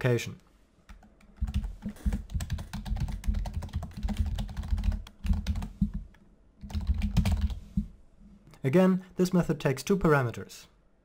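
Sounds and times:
rapid keyboard typing: 0.9 - 7.9.

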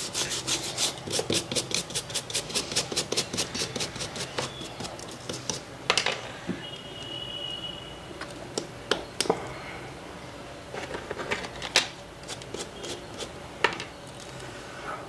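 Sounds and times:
faint high steady tone: 6.5 - 8.2.

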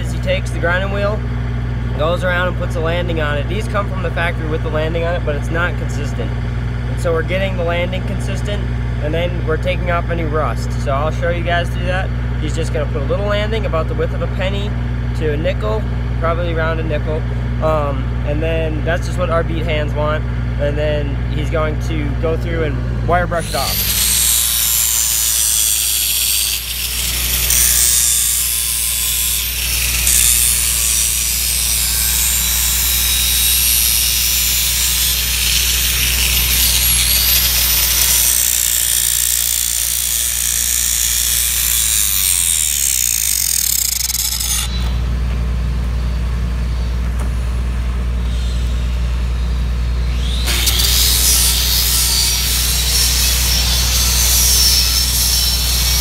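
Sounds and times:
angle grinder grinding steel: 23.3 - 45.0, 50.0 - 56.0.

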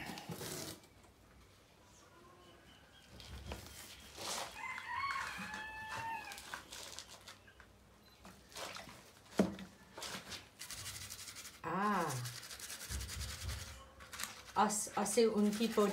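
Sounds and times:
rooster crowing: 4.5 - 6.6
pigment rubbing on paper: 10.6 - 15.9.

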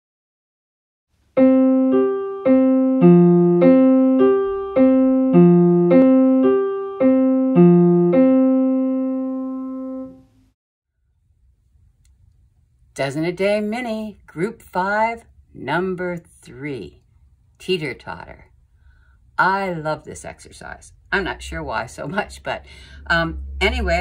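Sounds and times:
digital piano notes: 1.4 - 10.4.

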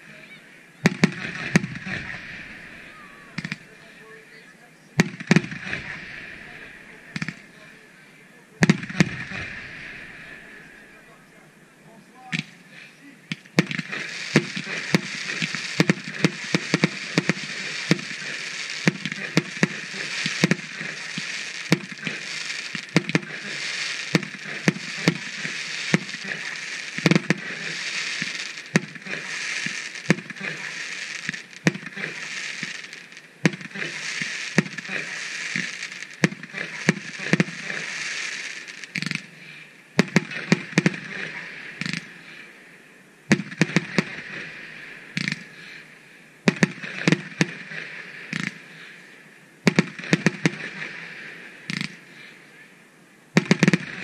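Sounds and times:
crackling firework stars: 0.0 - 54.0
firework shells bursting: 0.8 - 4.1, 5.0 - 7.9, 8.6 - 11.4, 13.3 - 39.3.

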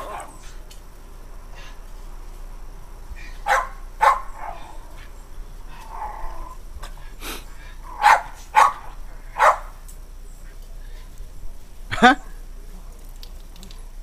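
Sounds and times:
dog barking: 3.4 - 4.8, 7.9 - 9.8.

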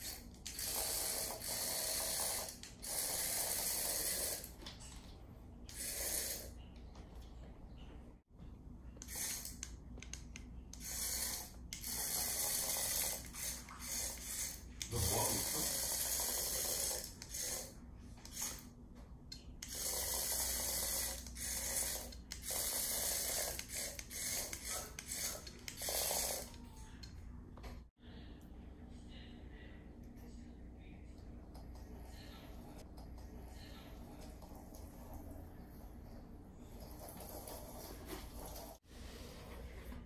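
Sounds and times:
toy motor whirring: 0.0 - 4.6, 5.7 - 6.5, 9.0 - 18.7, 19.6 - 26.6.

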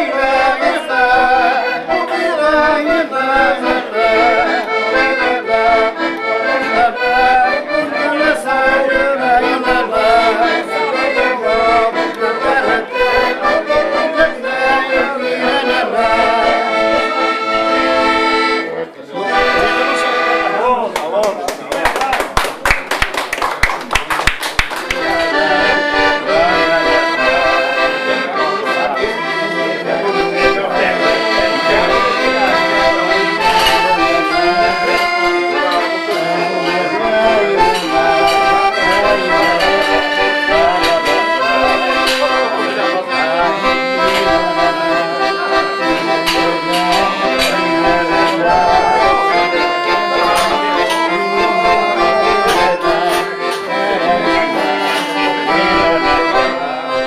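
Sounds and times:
accordion folk tune: 0.0 - 21.4, 23.2 - 57.0.

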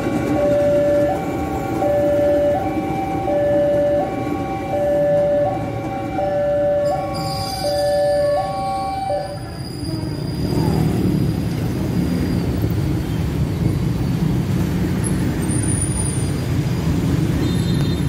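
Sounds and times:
level crossing warning alarm: 0.0 - 9.6
electric trains rumbling: 0.0 - 17.4
road traffic: 0.0 - 18.0.

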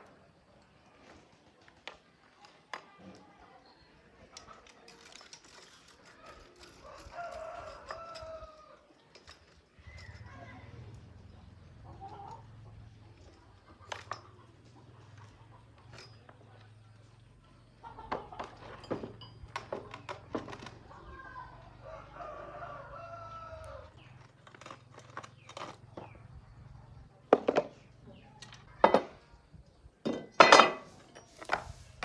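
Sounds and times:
rooster crowing: 21.8 - 23.9.

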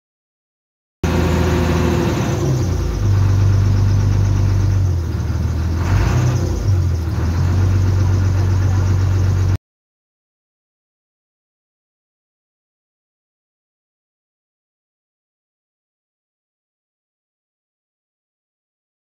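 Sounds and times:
boat engine low hum: 1.0 - 9.6.

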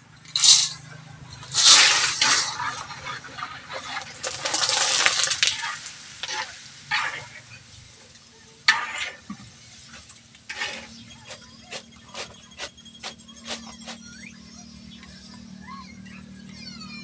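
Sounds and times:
wire strainer scraping a wok: 0.3 - 7.6, 8.7 - 14.0
pasta sizzling in hot oil: 1.4 - 14.0.

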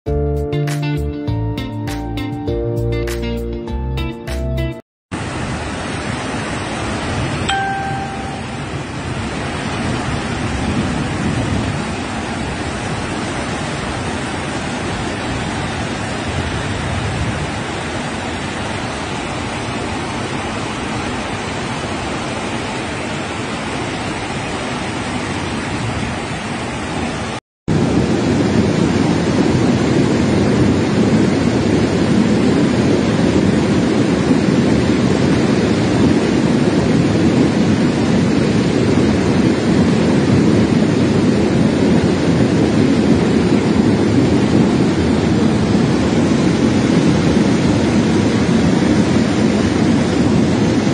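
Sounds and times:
floodwater rushing: 5.2 - 34.2.

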